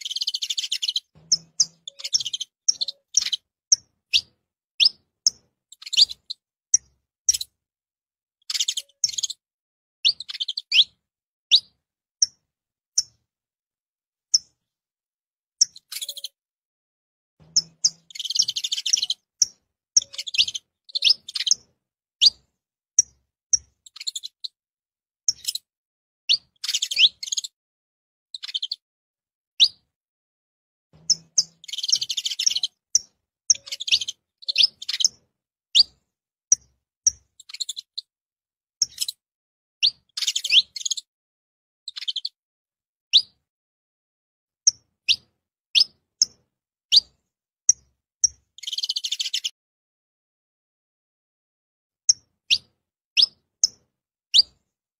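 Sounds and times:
finch chirping: 0.0 - 7.5, 8.4 - 9.4, 10.0 - 12.4, 15.6 - 16.4, 17.4 - 22.4, 23.0 - 24.6, 25.3 - 25.7, 26.3 - 27.5, 28.4 - 28.8, 29.6 - 29.8, 31.0 - 38.1, 38.8 - 39.2, 39.8 - 41.1, 41.9 - 42.4, 44.7 - 47.1, 47.7 - 49.5, 52.1 - 54.6.

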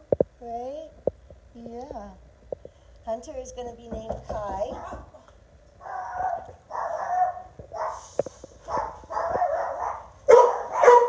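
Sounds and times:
knock at door: 3.9 - 5.2
dog barking: 4.8 - 5.2, 5.8 - 8.0, 8.6 - 11.0.

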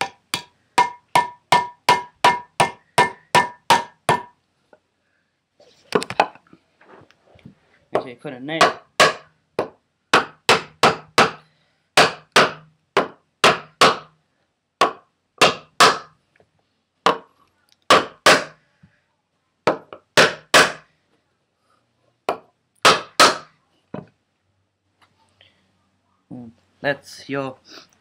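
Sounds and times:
rubber mallet knocking on wood: 0.0 - 4.4, 8.0 - 11.4, 12.0 - 14.1, 14.8 - 16.1, 17.0 - 17.3, 17.9 - 18.5, 19.7 - 20.8, 22.3 - 24.1.

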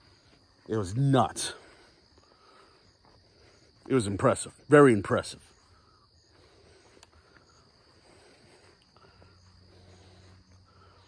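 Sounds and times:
insect chirping: 0.0 - 11.0
faint ticks: 6.9 - 7.5.

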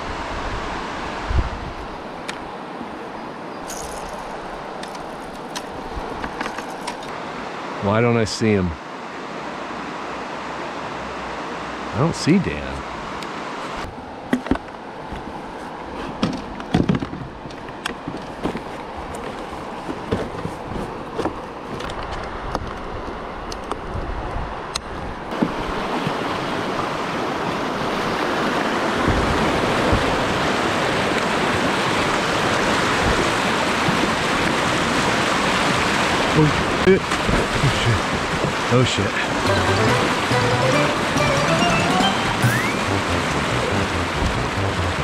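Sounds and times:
splashes and knocks: 25.3 - 26.9, 28.9 - 40.1
whitewater rushing: 25.3 - 45.0.

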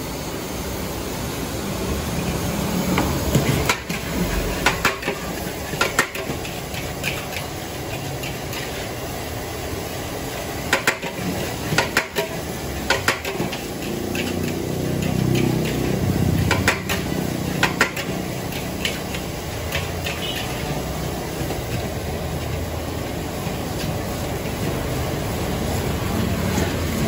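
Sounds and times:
rice sizzling: 0.0 - 27.0
metal spatula clanking on a wok: 3.6 - 8.8, 10.7 - 20.8.

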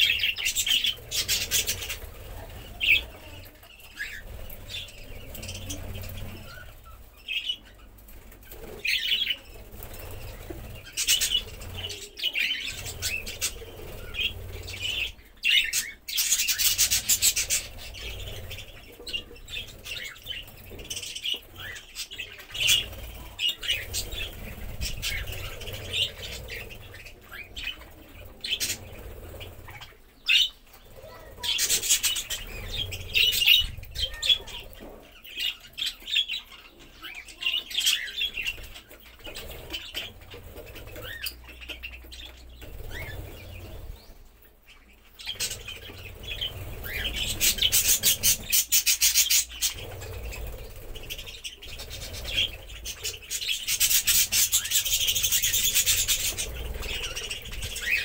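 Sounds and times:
wing flapping: 0.0 - 36.0, 37.8 - 44.4, 45.2 - 58.0
budgerigars chattering and chirping: 0.0 - 58.0.

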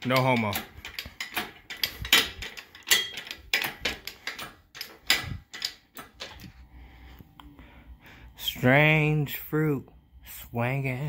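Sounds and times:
hydraulic jack clicking and clanking: 0.0 - 6.6.

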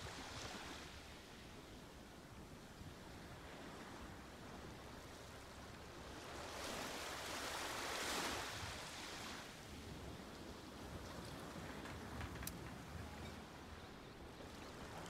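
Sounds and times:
low hiss of surf: 0.0 - 15.0
ocean waves breaking: 3.0 - 15.0.

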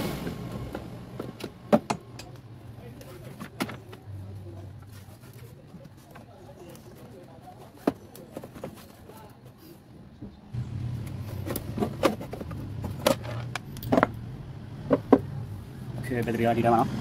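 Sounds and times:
low engine hum: 10.5 - 17.0.

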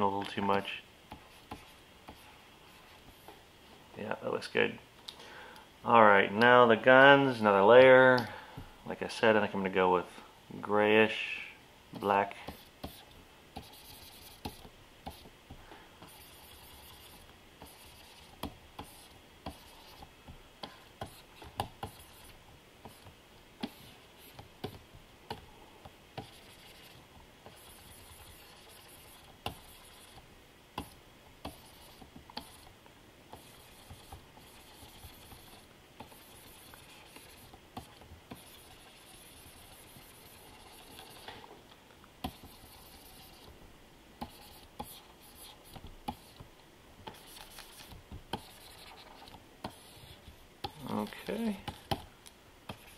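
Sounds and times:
stylus scratching on screen: 0.3 - 3.4, 12.0 - 15.3, 16.0 - 25.5, 26.2 - 41.5, 42.2 - 43.6, 44.2 - 46.5, 47.1 - 52.1, 52.7 - 52.9.

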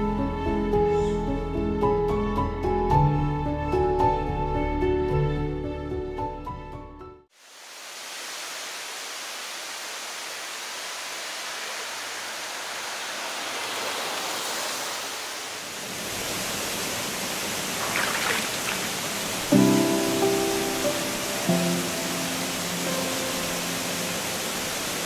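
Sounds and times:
water rushing over rocks: 10.0 - 25.0.

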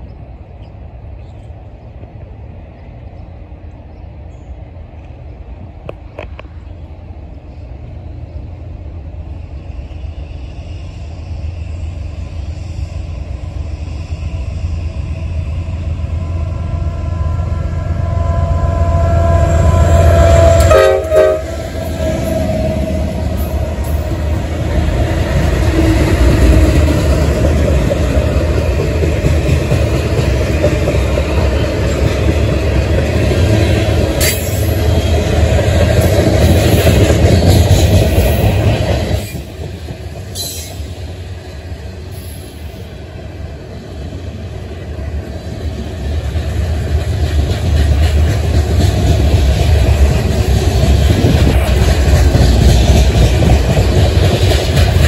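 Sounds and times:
diesel locomotive passing: 0.0 - 55.0
train wheels clattering over rails: 20.2 - 42.9, 44.7 - 55.0.

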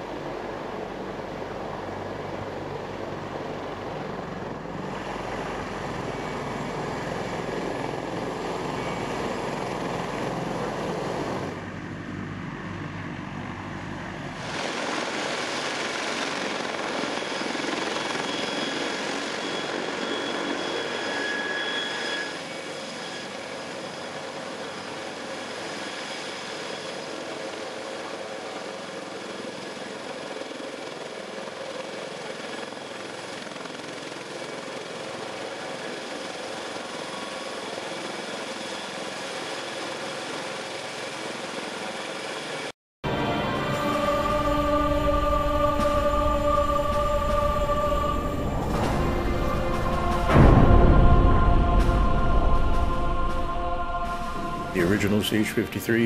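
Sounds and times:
helicopter engine and rotor noise: 0.0 - 56.0
high turbine whine: 0.0 - 56.0.

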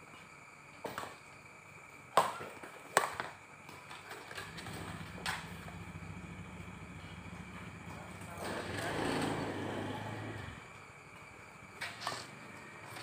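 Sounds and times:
low steady rumble: 4.6 - 8.4.

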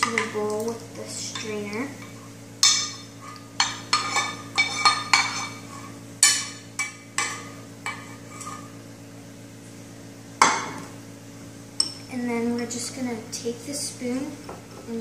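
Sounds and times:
metal spoon scraping saucepan: 1.2 - 6.5, 7.2 - 8.7.

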